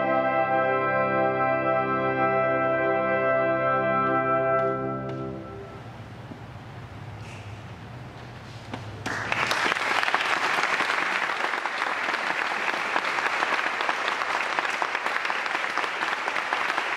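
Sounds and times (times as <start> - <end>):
brass ensemble chord: 0.0 - 6.2
audience applause: 9.0 - 16.9.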